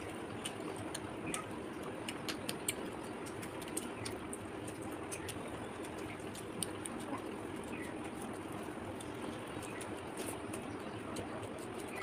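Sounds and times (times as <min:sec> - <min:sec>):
chewing clicks and smacks: 0:00.0 - 0:12.0
fingers on clay plates: 0:00.3 - 0:08.3.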